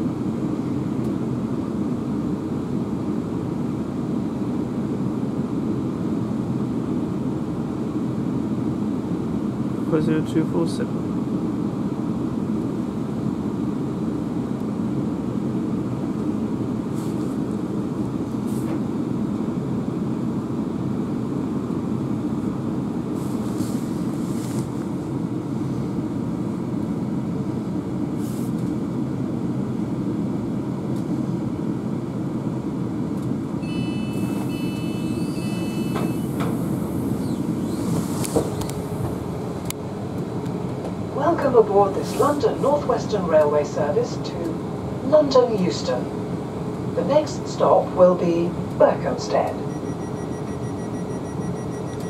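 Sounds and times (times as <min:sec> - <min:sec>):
train interior low hum: 0:00.0 - 0:52.0
door warning beeps: 0:33.6 - 0:37.4, 0:49.6 - 0:52.0.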